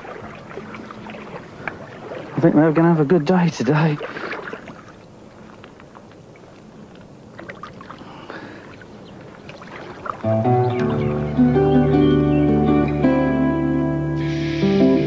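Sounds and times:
water splashing and sloshing: 0.0s - 11.2s
acoustic guitar music: 10.2s - 15.0s.

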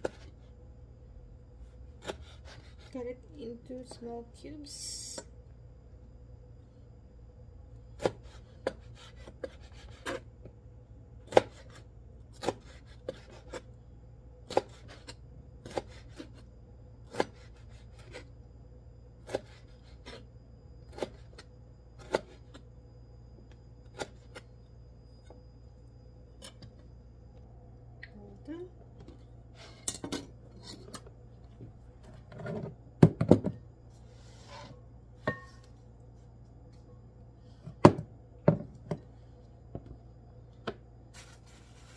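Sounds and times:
knife chopping on cutting board: 11.3s - 11.8s, 17.1s - 18.2s.

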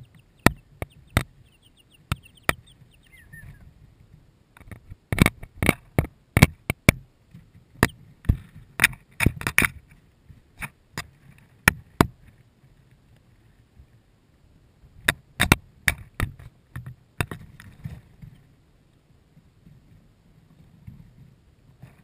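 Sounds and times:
beaks tapping on plastic housing: 0.0s - 3.3s.

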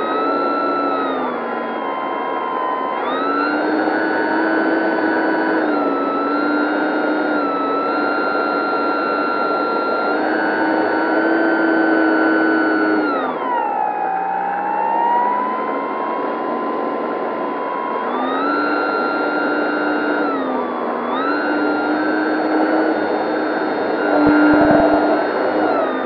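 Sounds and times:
electric motor high whine: 0.0s - 14.2s, 17.8s - 26.0s
rushing air noise: 24.2s - 26.0s.

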